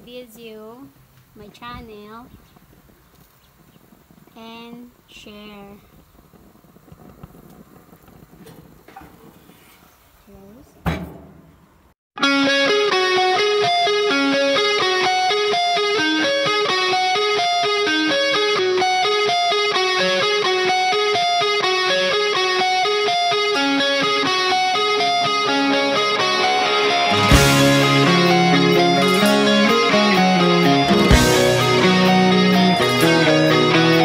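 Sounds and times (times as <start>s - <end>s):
electric guitar picking notes: 12.2s - 34.0s
heavy full band section: 25.7s - 34.0s
cymbal crash: 26.0s - 34.0s.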